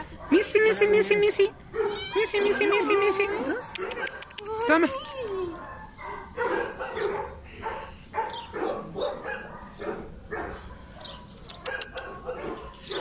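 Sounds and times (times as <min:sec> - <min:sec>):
dog barking: 0:00.1 - 0:00.5, 0:01.7 - 0:02.0, 0:03.7 - 0:04.3, 0:05.5 - 0:13.0.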